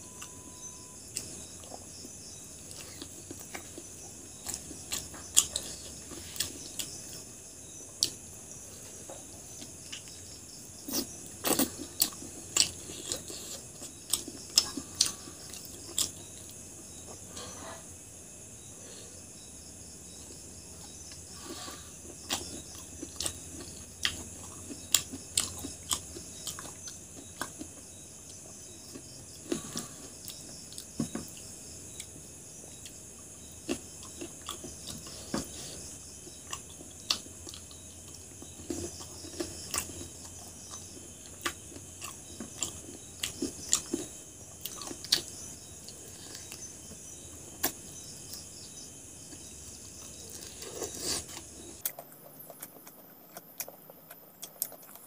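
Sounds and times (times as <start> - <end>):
crickets chirping: 0.0 - 55.0
person chewing food: 1.0 - 7.3, 7.9 - 17.8, 20.3 - 32.2, 32.8 - 48.5, 49.2 - 55.0.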